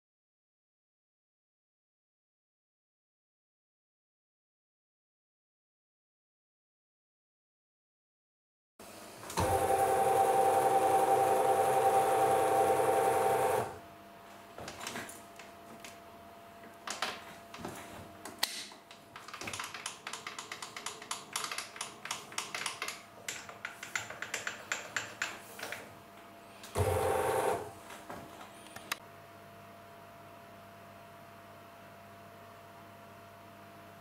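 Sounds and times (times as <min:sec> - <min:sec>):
machine motor humming: 0:09.3 - 0:13.8, 0:26.7 - 0:27.8.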